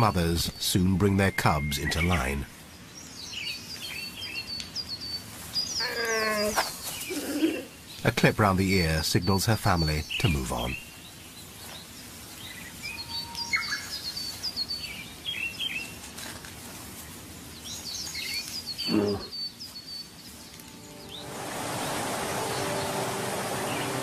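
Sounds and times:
birds chirping and calling: 0:00.0 - 0:16.0, 0:17.5 - 0:24.0
sustained music tones: 0:20.2 - 0:24.0
steady rushing noise: 0:20.4 - 0:24.0.

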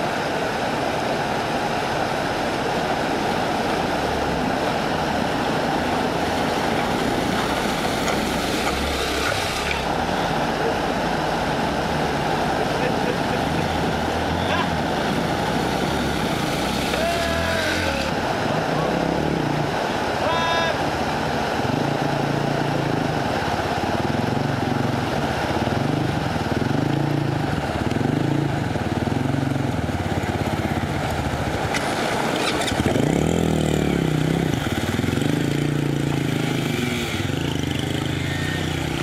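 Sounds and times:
flowing water rushing: 0:00.0 - 0:39.0
small motorcycle engines revving: 0:03.8 - 0:39.0.

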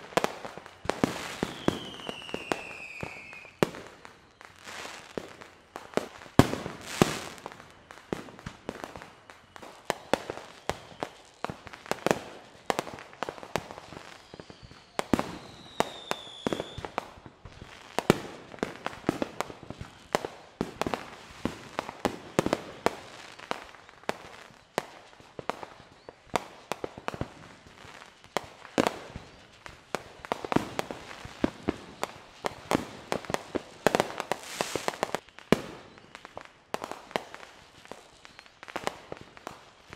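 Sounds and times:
firework whistle falling in pitch: 0:00.0 - 0:03.6, 0:13.6 - 0:17.0
fireworks bangs and crackling: 0:00.0 - 0:39.9.

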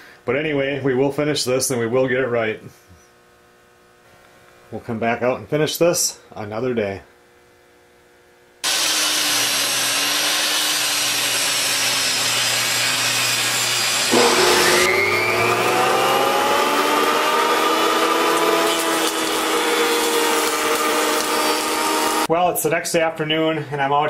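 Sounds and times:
jointer whining: 0:08.6 - 0:22.3
table saw cutting wood: 0:08.6 - 0:22.3.

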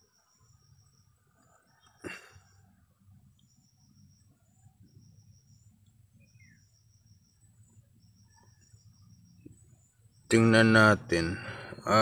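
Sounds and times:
insects trilling: 0:00.0 - 0:12.0.

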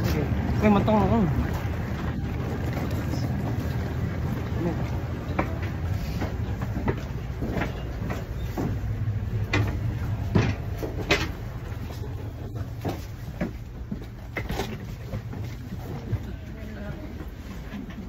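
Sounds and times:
train carriage low rumble: 0:00.0 - 0:18.0
sharp clicks and knocks: 0:05.3 - 0:12.0.

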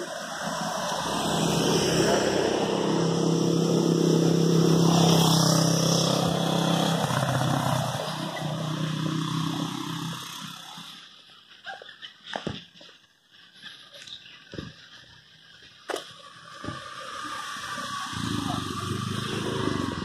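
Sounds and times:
motorbike engine passing by: 0:00.0 - 0:11.1, 0:16.2 - 0:20.0.

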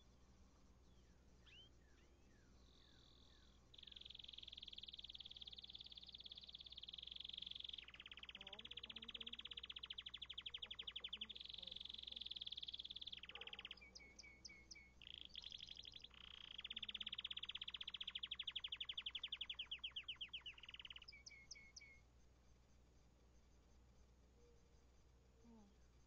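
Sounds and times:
canary trilling: 0:03.8 - 0:22.0
high chirps: 0:03.8 - 0:22.0.

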